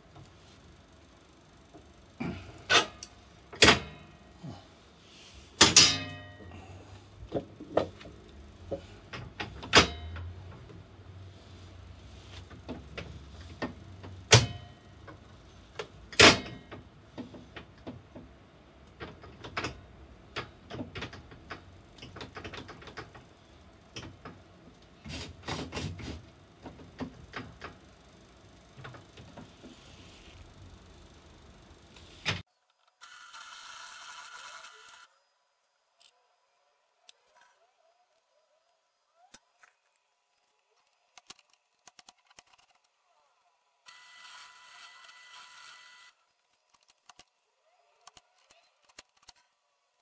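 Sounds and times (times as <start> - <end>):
short ringing clang: 5.8 - 6.5.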